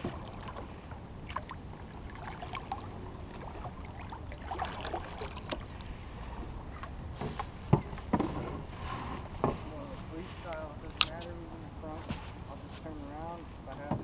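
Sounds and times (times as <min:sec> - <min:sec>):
water splashing against canoe: 0:00.0 - 0:10.1.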